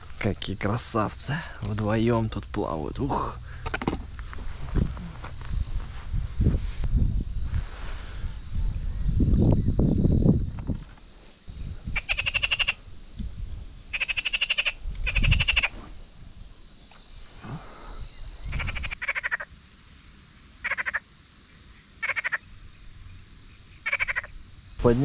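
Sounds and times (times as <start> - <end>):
frogs croaking: 0.8 - 6.0, 9.5 - 19.7, 20.5 - 24.8
wind rumble on microphone: 1.7 - 14.1, 14.7 - 19.0.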